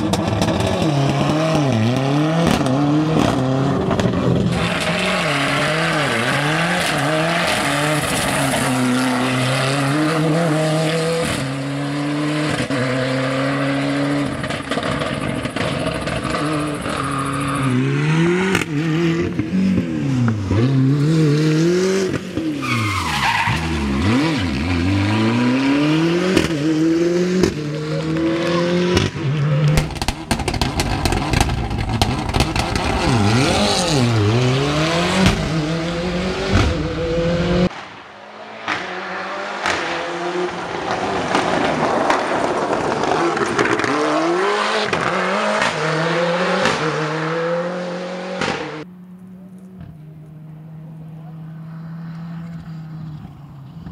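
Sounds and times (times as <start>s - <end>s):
rally car engine revving: 0.0s - 53.9s
exhaust pops and crackles: 14.3s - 17.0s, 28.9s - 33.4s, 40.8s - 44.1s.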